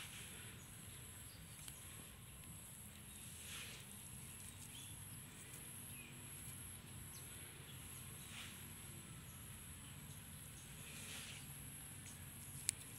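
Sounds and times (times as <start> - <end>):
dry straw rustling: 1.6 - 5.8.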